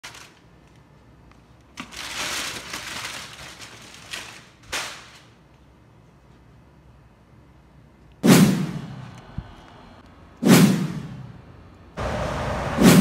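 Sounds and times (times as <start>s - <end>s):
aluminium foil crinkling: 0.0s - 0.8s, 1.6s - 5.4s.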